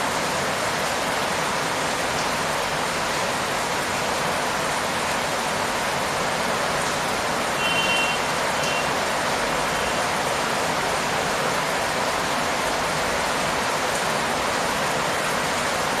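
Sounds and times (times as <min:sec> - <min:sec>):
rain on leaves and ground: 0:00.0 - 0:16.0.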